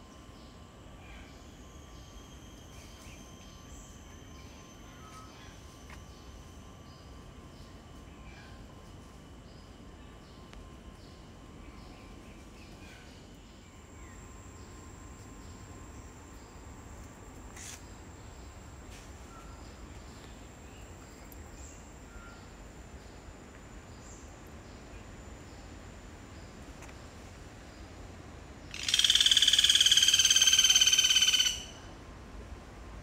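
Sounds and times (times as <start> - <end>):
faint high-pitched tone: 0.0 - 17.3, 18.1 - 26.5
pulsed buzzing animal call: 28.7 - 31.9.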